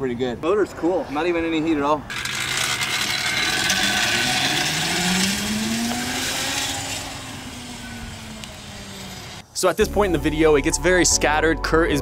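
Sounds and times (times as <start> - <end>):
electric motorcycle whining: 2.1 - 9.4.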